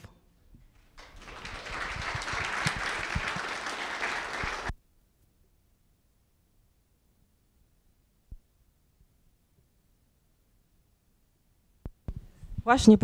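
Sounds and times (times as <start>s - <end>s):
audience applauding: 0.7s - 4.7s.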